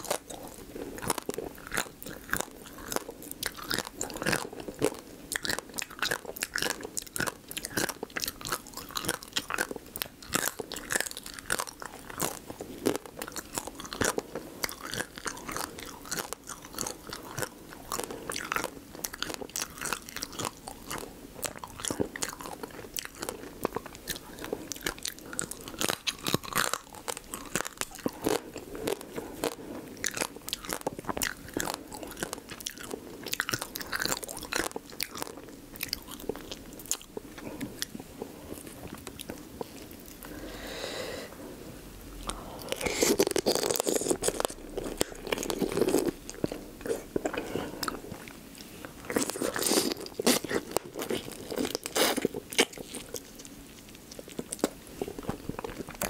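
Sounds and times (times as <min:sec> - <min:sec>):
crunchy chewing: 0:00.0 - 0:40.8, 0:42.2 - 0:56.0.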